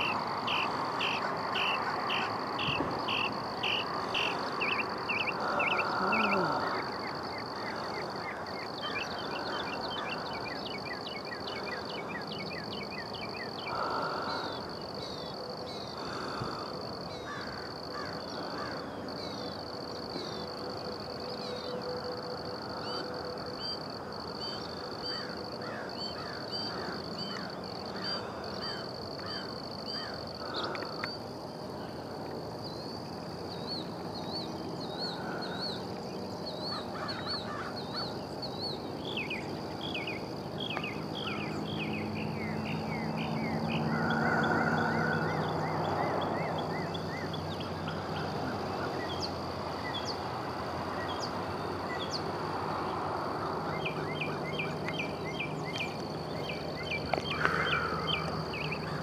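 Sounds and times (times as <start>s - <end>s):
harsh bird calls: 0.0s - 15.2s, 53.7s - 59.0s
birds chirping: 0.0s - 19.6s, 53.7s - 59.0s
high-pitched insect drone: 0.0s - 50.2s.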